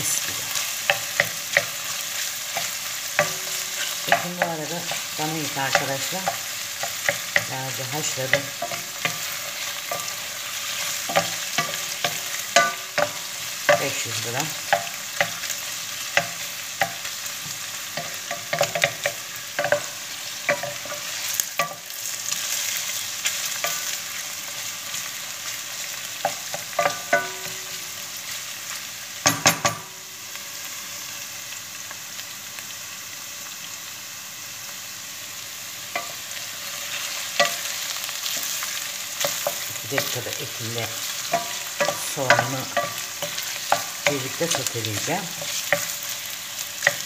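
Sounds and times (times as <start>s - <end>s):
meat and onions sizzling: 0.0s - 47.0s
wooden spoon scraping a pan: 36.0s - 47.0s.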